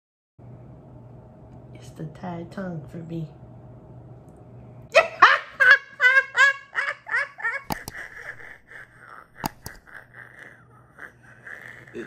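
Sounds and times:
woman laughing: 0:04.9 - 0:12.0
sharp clicks: 0:07.6 - 0:08.6, 0:09.2 - 0:10.1.

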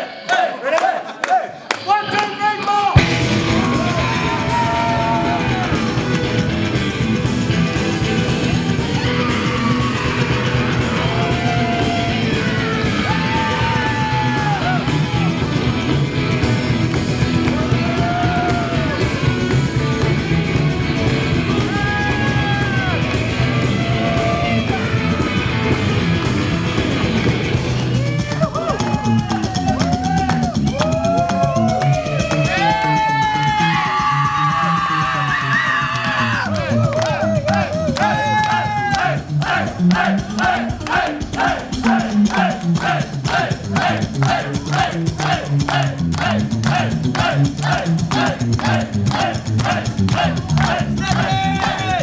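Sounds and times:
crowd yelling: 0:00.0 - 0:52.0
rockabilly band playing: 0:02.9 - 0:52.0
electric guitar bending notes: 0:03.0 - 0:30.8
slapped upright bass: 0:03.0 - 0:52.0.

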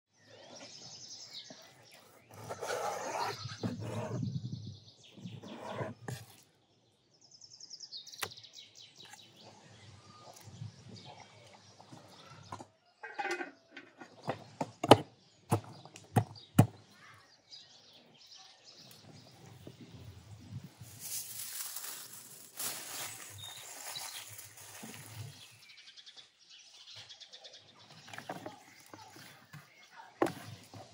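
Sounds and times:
birds chirping: 0:00.1 - 0:30.9
handling noises: 0:20.6 - 0:25.6, 0:27.9 - 0:30.9.

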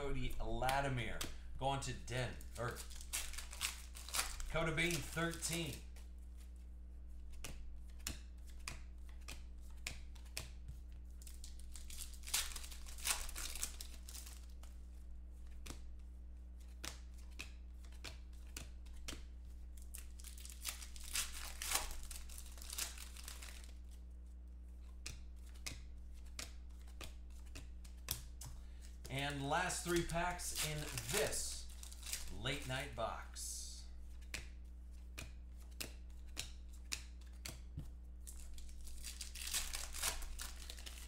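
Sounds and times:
steady low hum: 0:00.0 - 0:09.6
foil wrapper crinkling and tearing: 0:02.4 - 0:05.8, 0:11.2 - 0:14.6, 0:19.8 - 0:23.8, 0:29.3 - 0:33.0, 0:38.3 - 0:41.0
cards clicking while thumbed: 0:07.3 - 0:10.8, 0:16.6 - 0:20.1, 0:24.8 - 0:32.9, 0:34.1 - 0:41.0.

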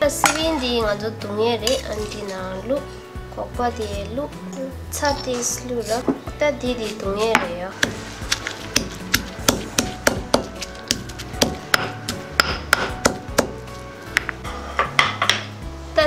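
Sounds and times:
stone pestle pounding in mortar: 0:06.8 - 0:15.5.

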